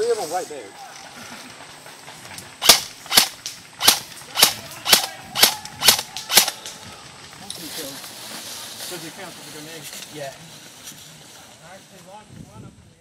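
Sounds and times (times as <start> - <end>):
gunshots: 2.6 - 6.7.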